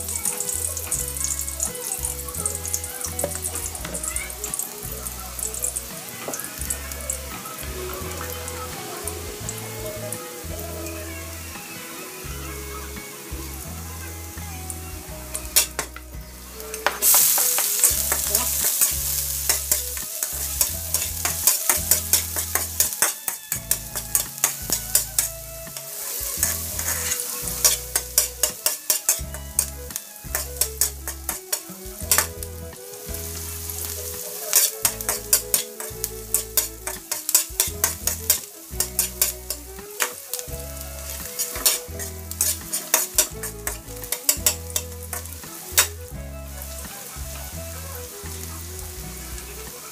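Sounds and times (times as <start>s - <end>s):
metal spatula scraping a wok: 0.0s - 4.8s, 15.4s - 46.0s
garlic sizzling in hot oil: 0.0s - 49.9s.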